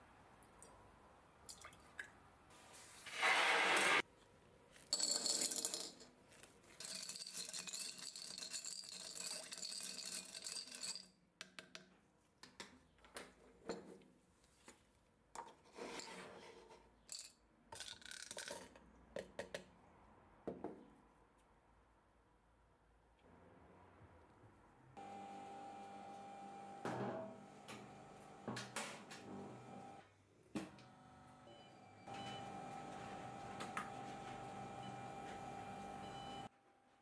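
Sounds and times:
screws rattling in plastic strainer: 6.8s - 11.1s.

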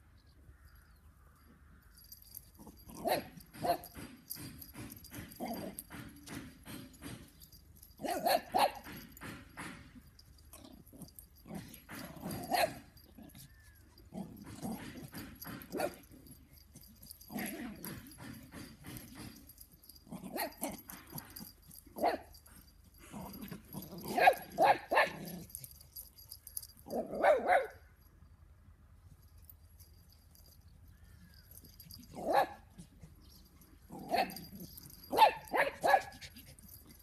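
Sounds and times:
dogs barking: 2.9s - 4.0s, 8.0s - 9.0s, 11.9s - 12.9s, 14.2s - 16.1s, 24.0s - 25.6s, 26.9s - 27.8s, 31.8s - 32.8s, 34.0s - 36.3s.

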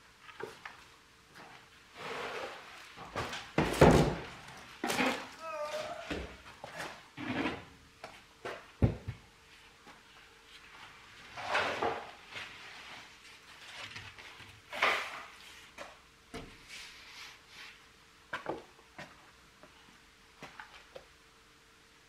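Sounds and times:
board sheet scraping: 1.9s - 2.9s, 11.2s - 13.1s.

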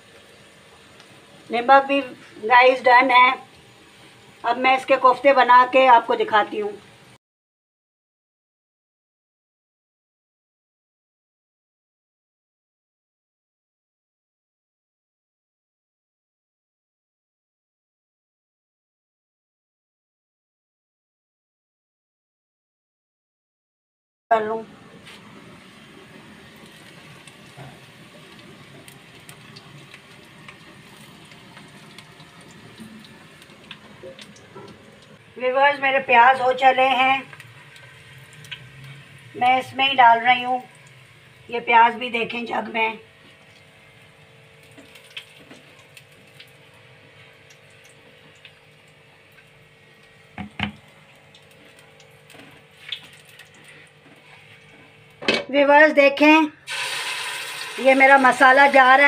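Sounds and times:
onions sizzling in oil: 0.0s - 7.2s, 24.9s - 55.0s, 56.7s - 59.0s.

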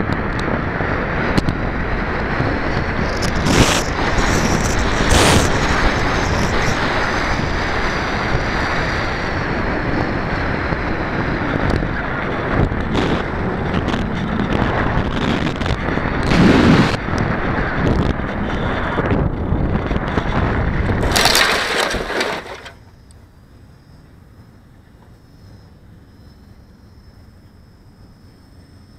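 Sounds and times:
wind rushing over microphone: 0.0s - 22.8s.

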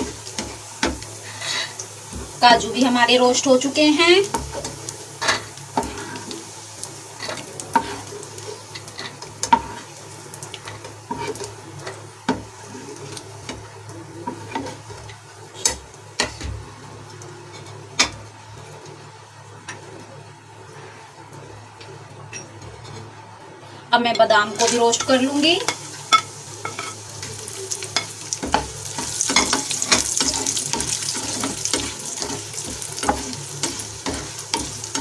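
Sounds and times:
spatula scraping a pan: 0.0s - 2.2s, 4.3s - 10.0s, 10.6s - 13.2s, 24.6s - 35.0s
ghee sizzling in a frying pan: 0.0s - 35.0s.

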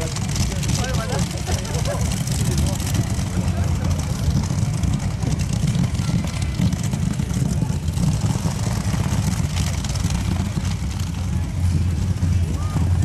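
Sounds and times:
racing engines idling: 0.0s - 13.0s.

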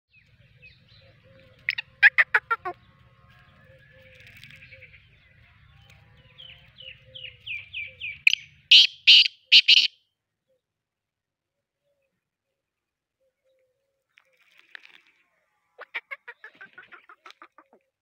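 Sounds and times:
francolin harsh calls: 8.3s - 9.9s.

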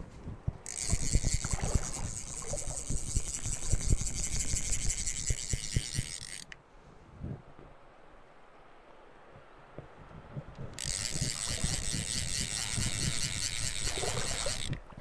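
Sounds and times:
fly reel drag buzzing: 0.6s - 6.6s, 10.8s - 14.8s.

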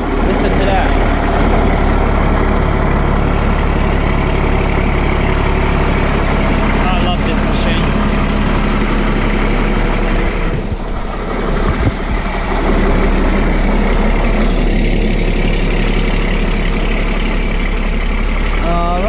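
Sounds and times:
diesel engine idling: 0.0s - 19.0s.

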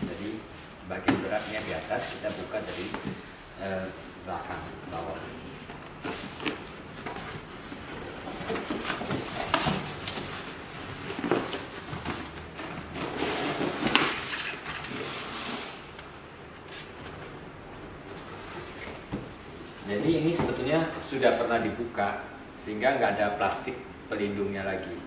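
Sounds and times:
cardboard scraping: 0.0s - 3.8s, 4.5s - 15.8s.

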